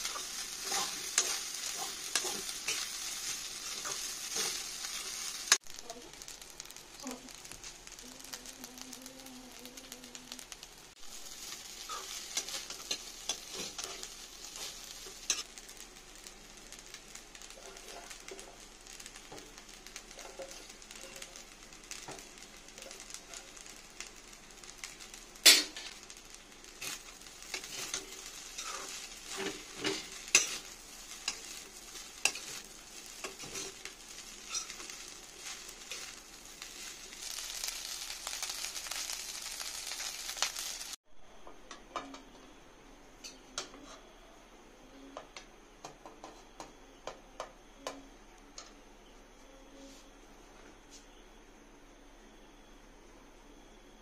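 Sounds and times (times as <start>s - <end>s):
metal spoon scraping wok: 0.0s - 5.6s, 26.8s - 36.2s
rice sizzling in a wok: 0.0s - 54.0s.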